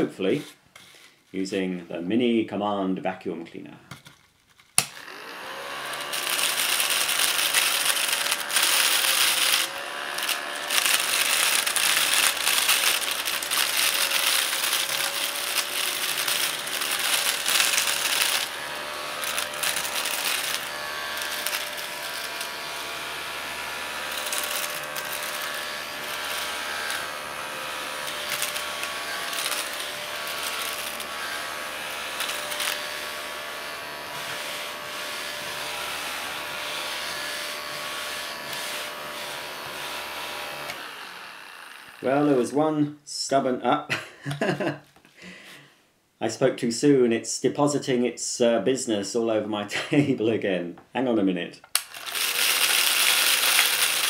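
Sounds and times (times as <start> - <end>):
small vacuum motor whining: 4.9 - 42.1, 51.8 - 54.0
paper scraps rattling: 6.0 - 18.6, 19.2 - 22.4, 28.0 - 31.1, 51.8 - 54.0.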